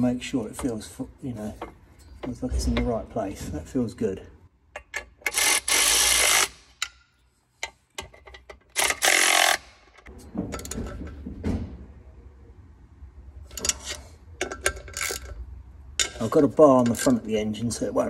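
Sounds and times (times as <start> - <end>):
ratchet wrench clicking: 4.8 - 7.0, 8.7 - 10.1.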